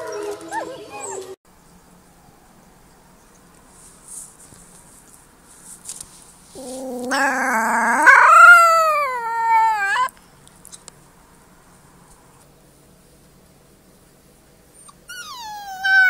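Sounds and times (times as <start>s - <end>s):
faint rustling: 3.3s - 7.8s
puppy howling: 6.6s - 10.1s, 14.8s - 16.0s.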